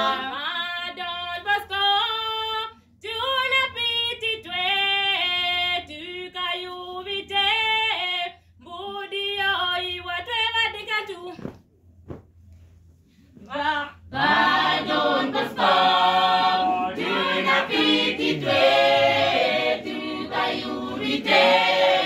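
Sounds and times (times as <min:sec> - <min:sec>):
choir singing a cappella: 0:00.0 - 0:01.0, 0:13.5 - 0:22.0.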